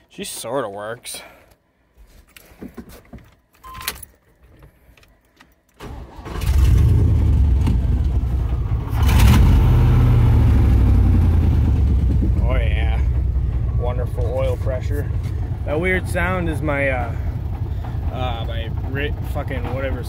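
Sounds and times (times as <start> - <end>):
short beep: 3.6 - 4.0
car engine starting and running: 5.8 - 20.0.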